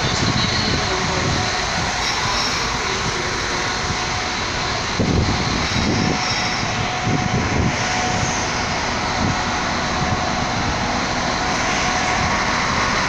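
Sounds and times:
diesel train engine droning: 0.0 - 13.0.

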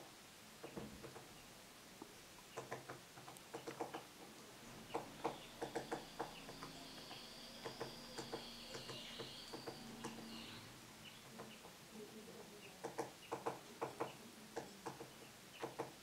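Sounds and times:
woodpecker knocking on wood: 0.6 - 1.4, 2.5 - 4.3, 4.9 - 10.3, 12.8 - 16.0.

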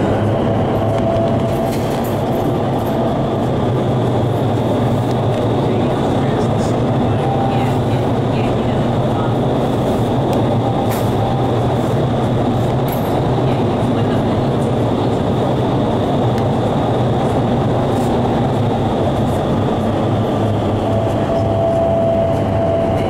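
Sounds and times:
wind tunnel air rushing: 0.0 - 23.0.

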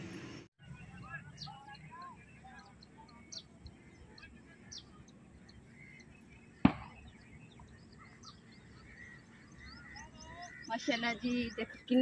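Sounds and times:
small birds chirping: 0.6 - 12.0
sharp knock: 6.6 - 7.0.

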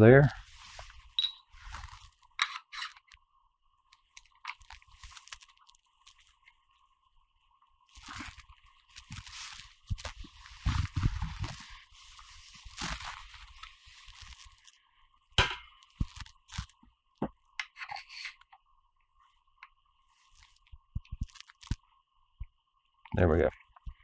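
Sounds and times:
rod scraping and rustling: 0.4 - 3.1.

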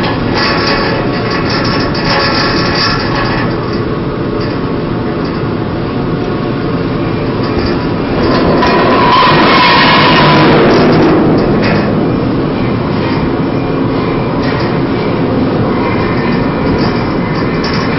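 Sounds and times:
chain grinding over steel deck: 0.0 - 3.9, 7.2 - 17.9
steady loud rumble: 0.0 - 17.9
high squeal: 8.2 - 14.8.

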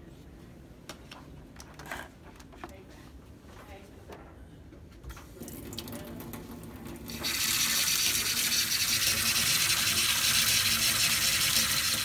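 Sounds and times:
tap water running into a sink: 5.4 - 12.0.

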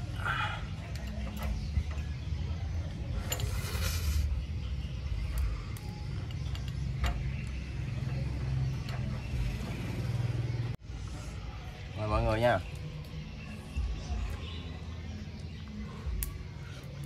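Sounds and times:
hissing rustle: 3.2 - 4.4.

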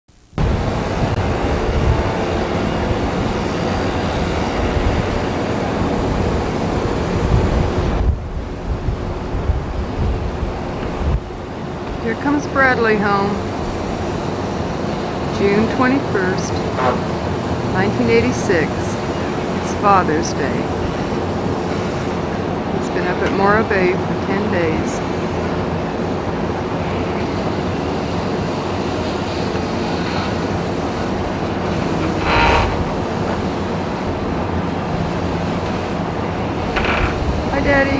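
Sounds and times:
harbour hiss and low rumble: 0.2 - 37.9
wind buffeting microphone: 0.4 - 37.9.

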